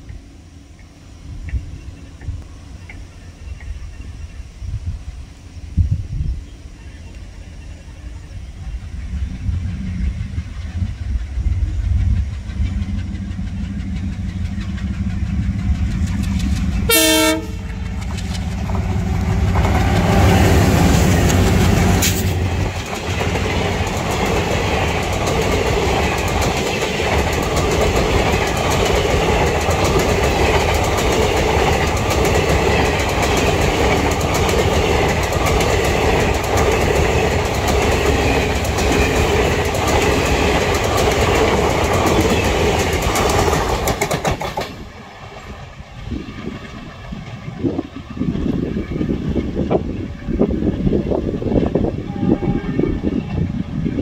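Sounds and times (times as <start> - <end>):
diesel locomotive engine rumble: 0.0 - 54.0
train wheels clickety-clack on rails: 0.8 - 3.9, 9.0 - 54.0
train horn blast: 16.8 - 18.0, 51.9 - 53.5.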